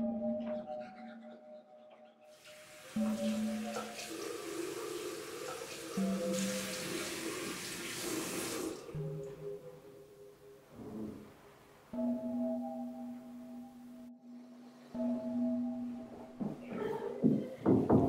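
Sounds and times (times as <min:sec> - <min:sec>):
drone-like music tones: 0:00.0 - 0:07.5, 0:11.9 - 0:17.3
sink tap running: 0:02.4 - 0:08.9.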